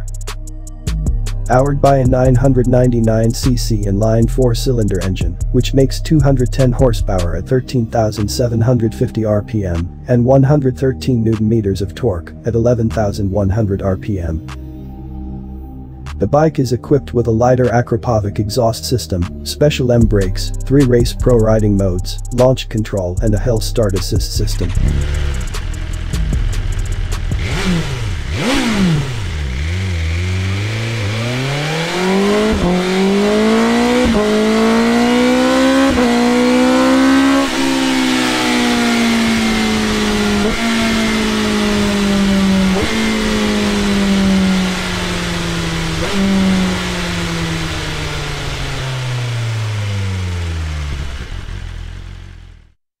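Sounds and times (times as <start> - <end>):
exhaust cracks: 20.0 - 52.8
motorcycle engine revving: 23.2 - 52.8.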